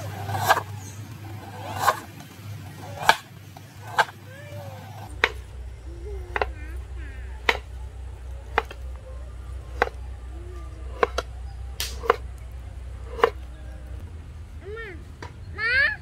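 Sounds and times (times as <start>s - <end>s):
knife chopping on wooden board: 7.4s - 7.7s, 8.6s - 8.8s, 9.7s - 10.0s, 11.0s - 12.2s, 13.0s - 13.4s.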